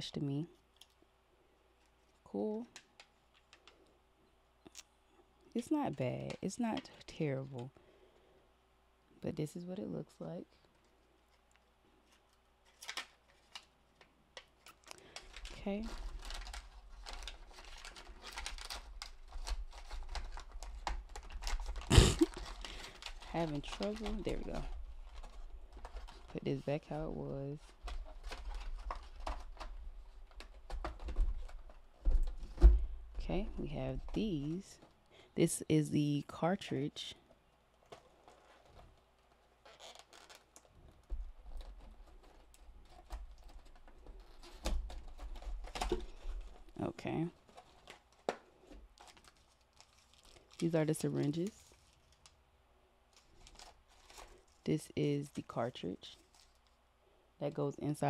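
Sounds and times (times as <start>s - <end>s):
cardboard packaging handled: 12.0s - 35.0s, 37.7s - 52.4s, 53.1s - 56.8s.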